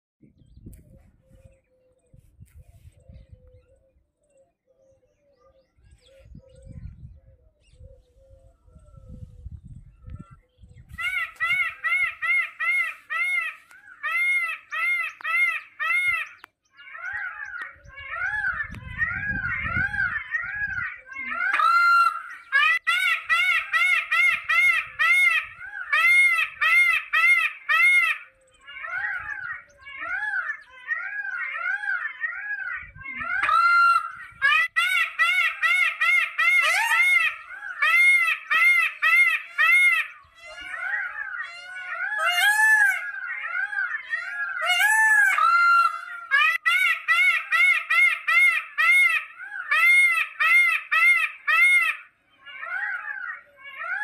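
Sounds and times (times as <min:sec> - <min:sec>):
peafowl calling: 0:10.1 - 0:54.0
small birds chirping: 0:28.2 - 0:34.4, 0:39.0 - 0:44.7.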